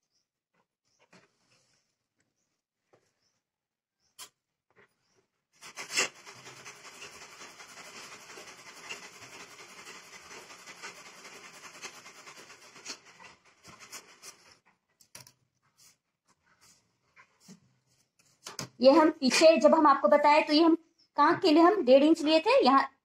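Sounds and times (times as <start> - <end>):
chalk rubbing on cloth: 5.6 - 14.6.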